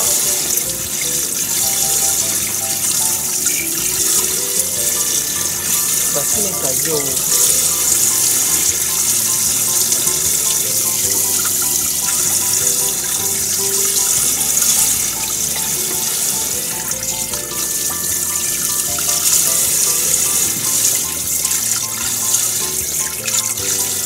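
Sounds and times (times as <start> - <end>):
hands rinsing fish: 0.0 - 24.0.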